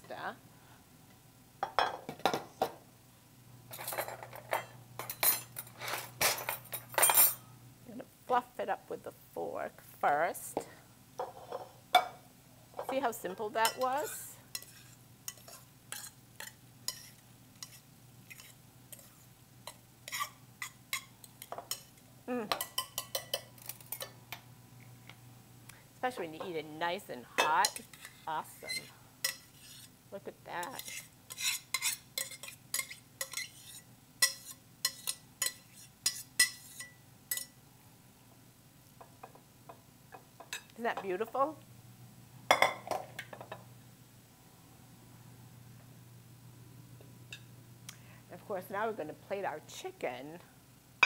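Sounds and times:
kitchenware clinking and clattering: 0:01.6 - 0:02.8, 0:03.7 - 0:07.4, 0:11.2 - 0:12.2, 0:22.5 - 0:24.2, 0:42.5 - 0:43.6
metal utensil scraping saucepan: 0:12.8 - 0:21.1, 0:27.4 - 0:29.9, 0:30.6 - 0:37.5.

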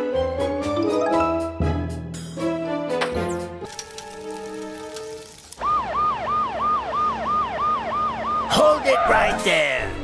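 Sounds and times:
cartoon background music: 0:00.0 - 0:04.8, 0:08.5 - 0:10.0.

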